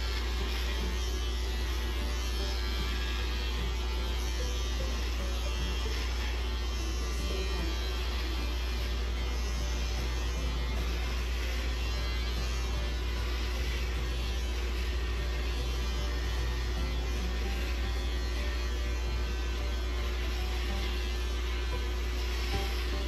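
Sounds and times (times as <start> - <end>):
electric hair clippers buzzing: 0.0 - 23.0.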